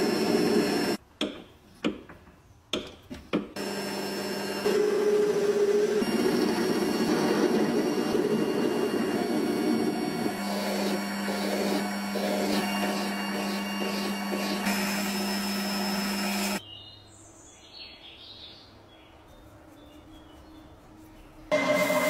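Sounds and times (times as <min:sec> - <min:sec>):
metal lathe humming: 0:00.0 - 0:01.0, 0:03.6 - 0:16.6, 0:21.5 - 0:22.0
file stroking spinning metal: 0:03.6 - 0:16.6.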